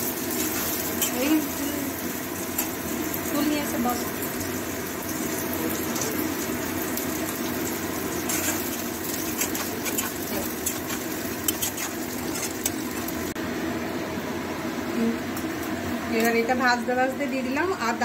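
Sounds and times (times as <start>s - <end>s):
vegetables sizzling in oil: 0.0s - 13.6s
metal spatula scraping wok: 8.2s - 13.1s.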